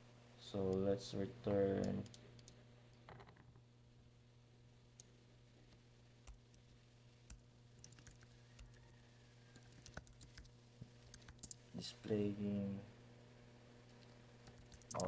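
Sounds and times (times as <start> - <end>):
low steady hum: 0.0 - 15.0
keyboard typing: 7.3 - 8.8, 9.5 - 11.6, 13.9 - 15.0.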